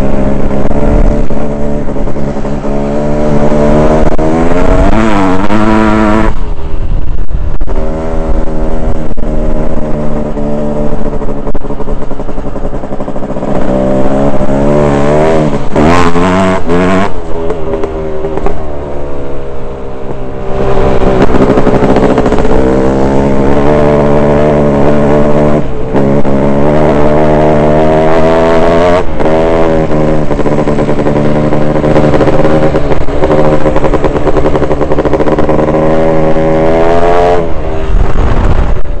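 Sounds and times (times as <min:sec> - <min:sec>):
dirt bike engine accelerating: 0:00.0 - 0:39.0.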